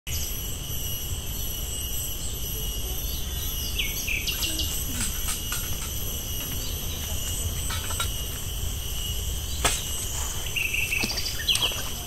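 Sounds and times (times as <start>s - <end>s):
high-pitched insect chorus: 0.1s - 12.0s.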